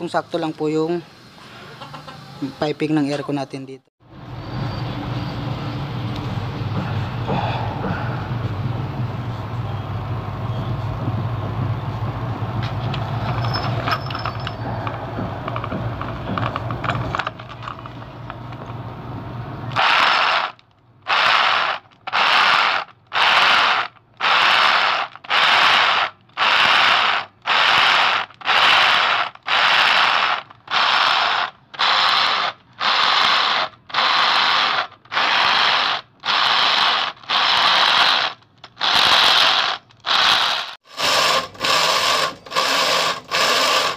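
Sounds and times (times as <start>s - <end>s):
steady low rumble: 5.6s - 13.3s
rotary hammer drilling concrete: 19.7s - 43.9s.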